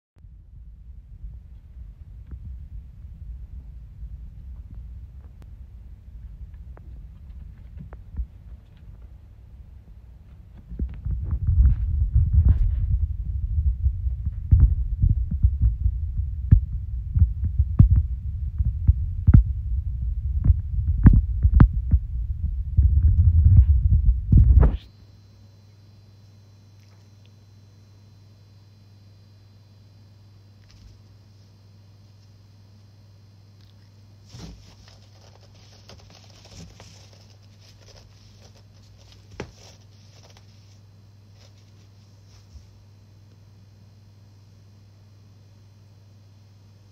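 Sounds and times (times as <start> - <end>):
low throbbing rumble: 0.2 - 24.9
cat pawing at cardboard box: 34.3 - 40.8.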